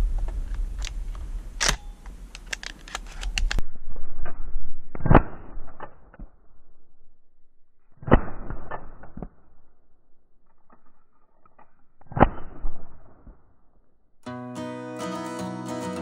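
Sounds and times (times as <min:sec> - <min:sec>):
acoustic guitar music: 0:14.2 - 0:16.0.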